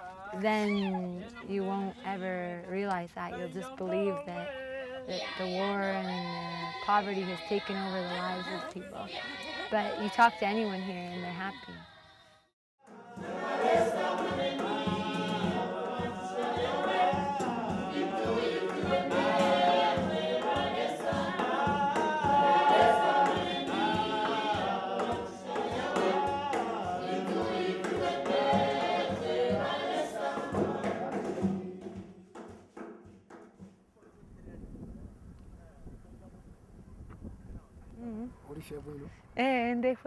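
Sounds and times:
group singing in harmony: 0.0 - 2.6, 3.3 - 11.6, 12.8 - 32.5
steady beat: 13.1 - 33.6.

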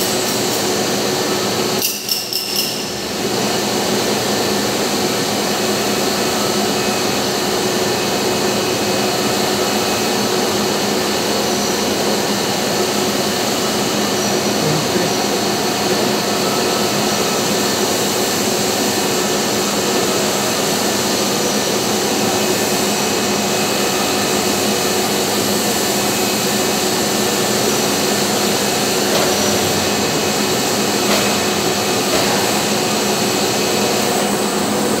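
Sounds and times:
machinery whirring and humming: 0.0 - 35.0.

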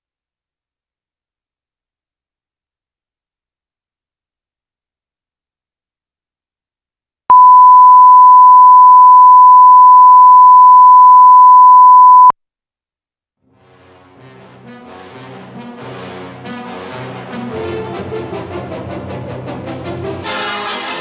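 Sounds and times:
music: 13.4 - 21.0.

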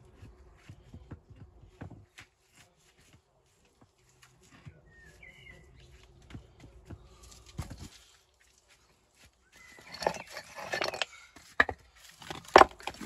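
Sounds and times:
scuffing of grit and rubble: 0.1 - 13.0
stone clicking and knocking on stone: 9.8 - 13.0.

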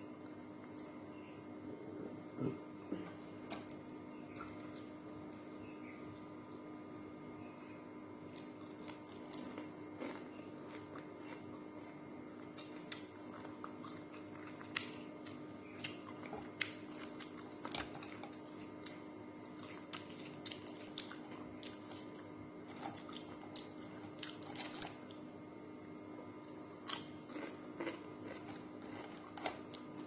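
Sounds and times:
faint steady hum: 0.0 - 30.0
person chewing and lip smacking: 8.3 - 25.2, 26.4 - 30.0.

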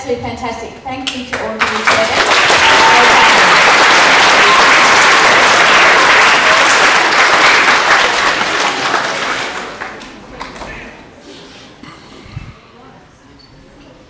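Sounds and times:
large audience applauding: 1.6 - 10.6.

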